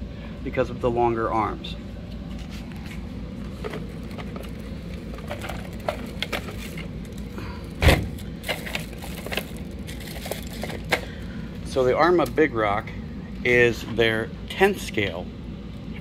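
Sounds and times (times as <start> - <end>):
low background hum: 0.0 - 16.0
loud thump: 7.8 - 8.1.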